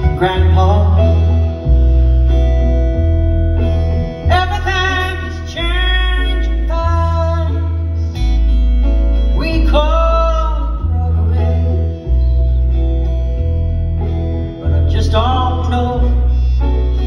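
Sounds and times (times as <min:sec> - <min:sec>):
acoustic guitar: 0:00.0 - 0:17.0
upright bass: 0:00.0 - 0:17.0.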